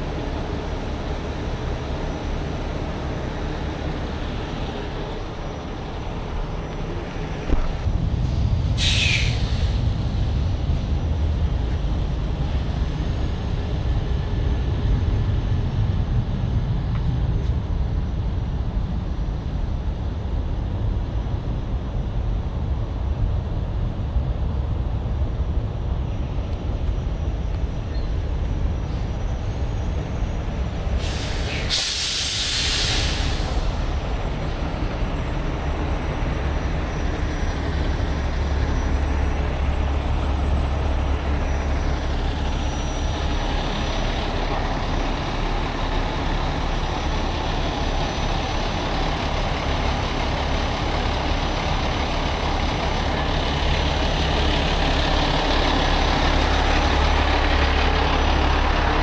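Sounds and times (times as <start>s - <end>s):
diesel truck engine rumbling: 0.0s - 59.0s
air release hiss: 8.2s - 9.8s, 30.9s - 34.0s.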